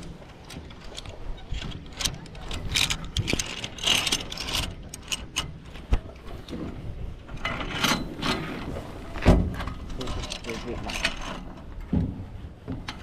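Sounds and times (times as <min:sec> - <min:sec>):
metal gear clicking and rattling: 0:00.4 - 0:05.5.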